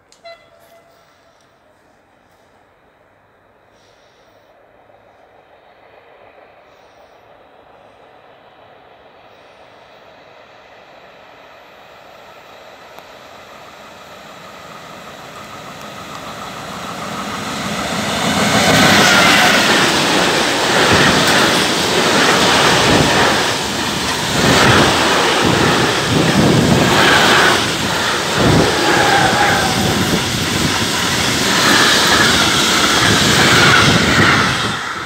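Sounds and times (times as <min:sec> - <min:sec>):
freight train passing: 0:00.0 - 0:35.0
train wheels clacking on rails: 0:13.8 - 0:35.0.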